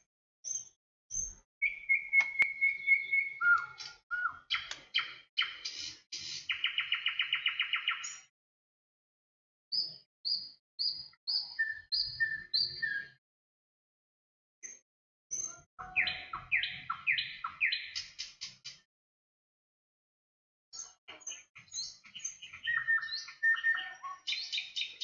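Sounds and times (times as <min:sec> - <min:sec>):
songbird singing: 0:00.4 - 0:08.3, 0:09.7 - 0:13.2, 0:14.6 - 0:18.8, 0:20.8 - 0:25.0.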